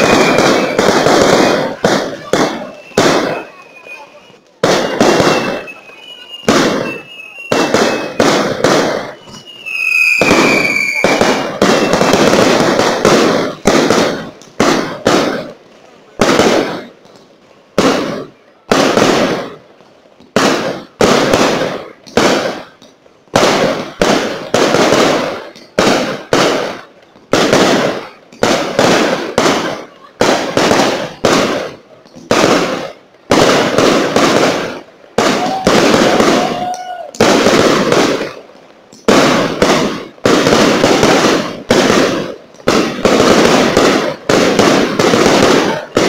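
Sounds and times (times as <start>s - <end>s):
firework shell bursts: 0.0s - 15.6s.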